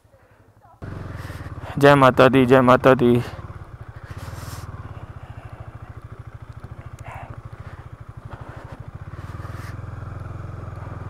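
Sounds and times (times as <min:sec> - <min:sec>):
motorcycle engine putter: 0:03.4 - 0:11.0.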